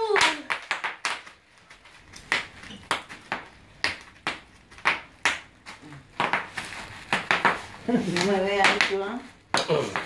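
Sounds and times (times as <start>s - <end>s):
bubble wrap popping: 0.0s - 10.0s.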